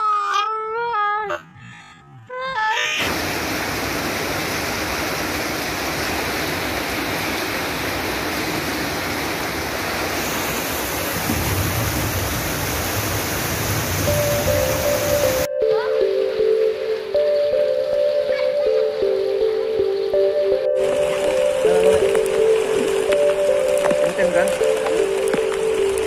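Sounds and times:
floodwater rushing over road: 0:03.0 - 0:15.5, 0:20.8 - 0:26.0.

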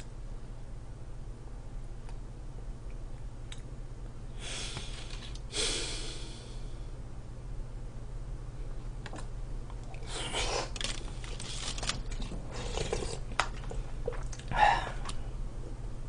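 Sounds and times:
chewing: 0:10.8 - 0:15.2.

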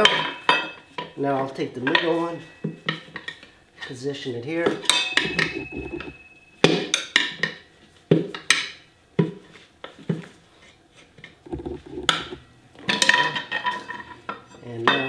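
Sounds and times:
tire levers clanking on wheel rim: 0:11.5 - 0:12.4.

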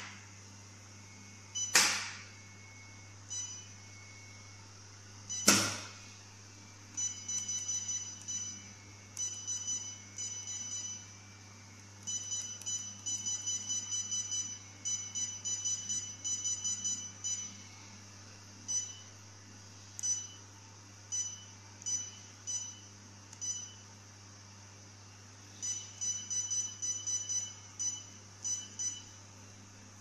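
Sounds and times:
sharp click: 0:01.7 - 0:02.2, 0:05.4 - 0:05.9.

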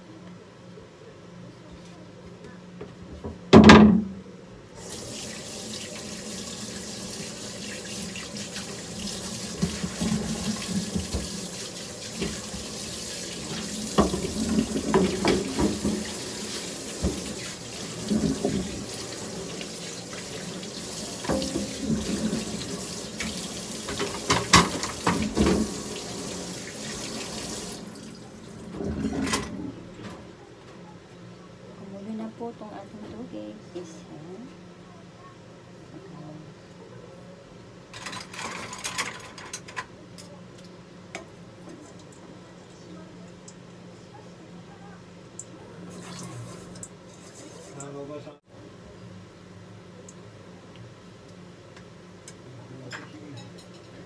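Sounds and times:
tap running into sink: 0:07.7 - 0:27.9
knocks and clatters of utensils: 0:09.6 - 0:11.4, 0:13.4 - 0:18.9, 0:21.2 - 0:25.8, 0:28.7 - 0:30.2, 0:37.9 - 0:40.4, 0:52.9 - 0:54.0.

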